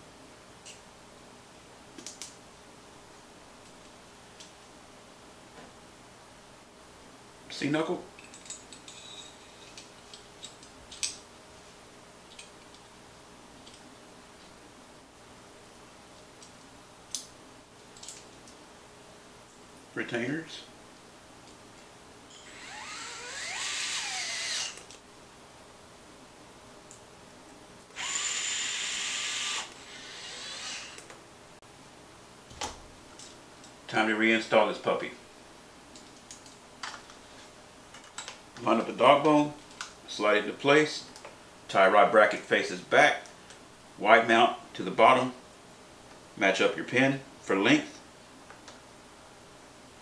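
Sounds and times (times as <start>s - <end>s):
electric screwdriver whining: 22.3s - 24.8s, 27.9s - 31.1s.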